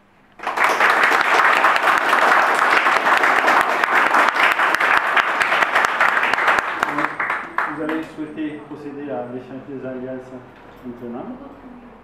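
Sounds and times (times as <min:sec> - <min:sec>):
audience applauding: 0:00.4 - 0:08.1.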